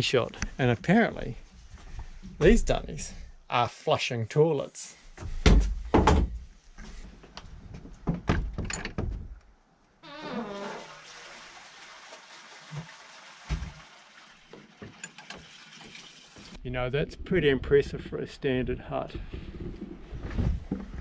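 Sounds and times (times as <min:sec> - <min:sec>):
knocks and clunks: 0:05.2 - 0:06.5, 0:07.7 - 0:09.4
toilet flushing: 0:10.1 - 0:16.6.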